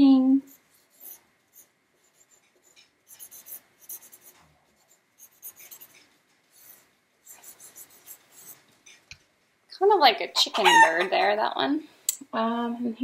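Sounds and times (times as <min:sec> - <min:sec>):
marker scratching on paper: 0:00.4 - 0:08.7.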